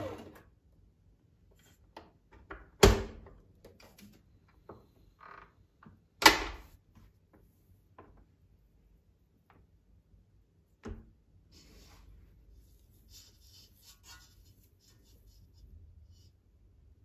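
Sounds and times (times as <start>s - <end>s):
dough scraping in steel bowl: 12.6s - 16.4s.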